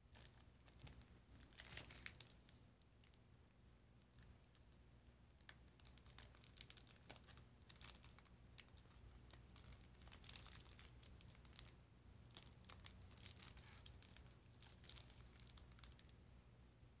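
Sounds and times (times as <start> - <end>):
plastic sachets crinkling: 0.1 - 2.4, 5.4 - 16.1.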